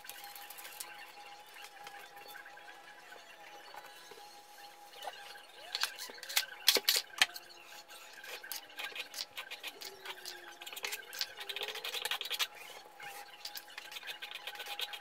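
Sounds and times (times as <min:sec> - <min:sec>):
trowel scraping compound: 0:08.2 - 0:15.0.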